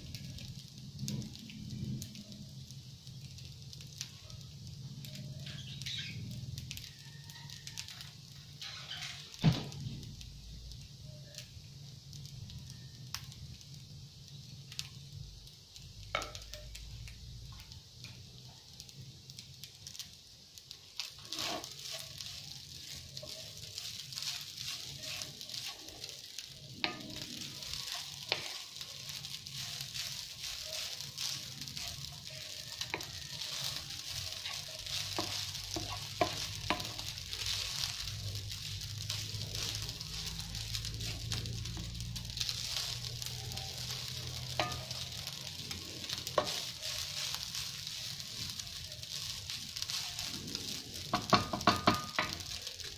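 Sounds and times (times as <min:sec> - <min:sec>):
rice sizzling in frying pan: 0:00.0 - 0:52.9
wooden spoon scraping pan: 0:21.1 - 0:26.0, 0:26.8 - 0:38.1, 0:46.0 - 0:50.4.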